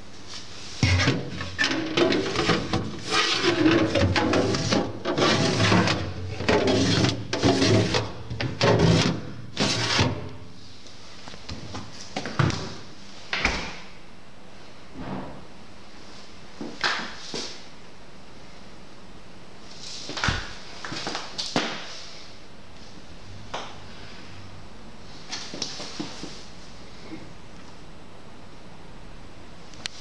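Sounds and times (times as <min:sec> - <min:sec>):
plastic drawers clattering: 0:00.8 - 0:10.3.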